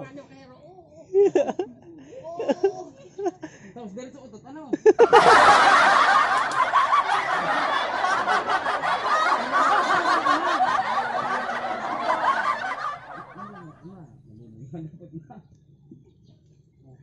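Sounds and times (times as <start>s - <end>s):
people laughing and snickering: 1.1s - 3.6s, 4.8s - 13.9s.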